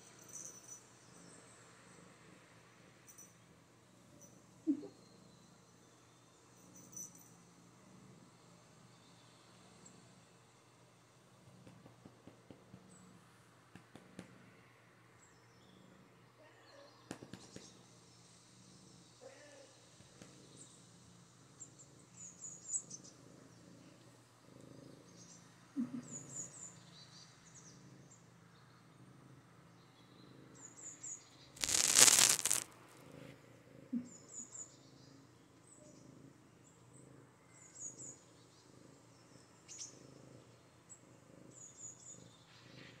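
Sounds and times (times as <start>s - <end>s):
kitten purring: 0.0s - 14.8s, 17.1s - 31.0s, 31.6s - 43.0s
loud rustling: 31.6s - 32.7s.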